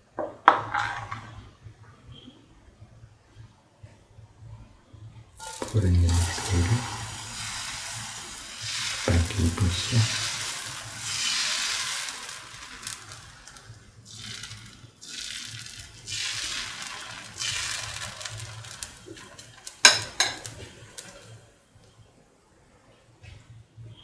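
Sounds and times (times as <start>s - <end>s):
ladle scraping sizzling batter: 5.4s - 21.5s.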